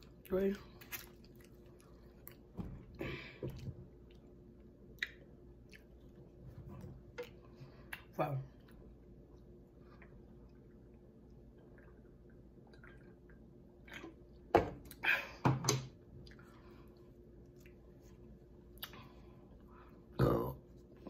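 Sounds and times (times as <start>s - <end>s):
wet mouth eating sounds: 0.0s - 2.5s, 3.5s - 6.3s, 18.7s - 19.2s.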